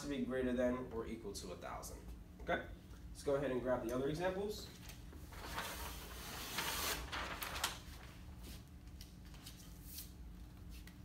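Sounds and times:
paper rustling and crinkling: 4.7s - 10.9s.

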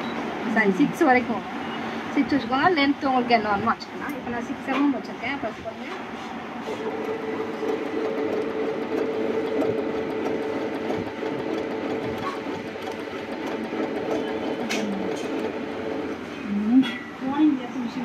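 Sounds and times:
sewing machine stitching: 6.6s - 16.2s.

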